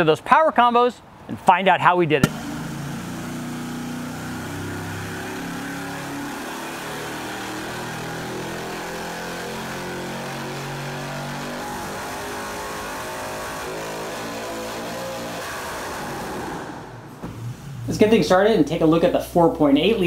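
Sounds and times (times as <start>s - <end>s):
engine running: 2.2s - 15.2s.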